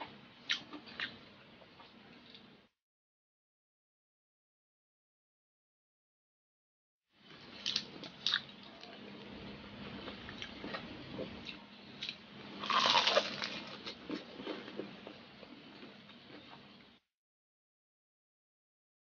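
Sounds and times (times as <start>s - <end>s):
crunchy food being chewed: 7.5s - 9.1s, 9.9s - 16.8s.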